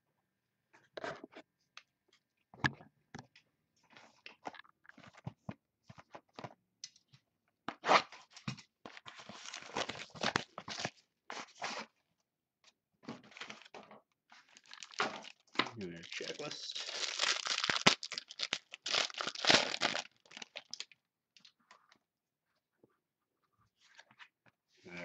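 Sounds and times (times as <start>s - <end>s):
plastic wrap crinkling: 9.3s - 11.0s, 14.4s - 21.0s.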